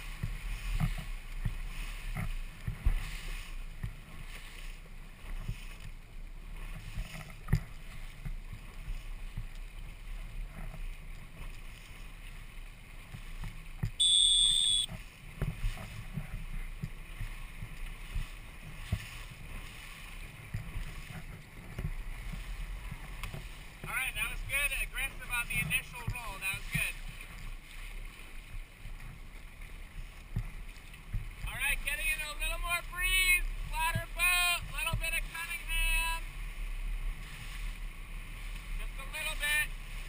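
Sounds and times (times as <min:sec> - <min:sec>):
water splashing beside boat: 0:00.0 - 0:40.0
short high-pitched beep: 0:14.0 - 0:14.9.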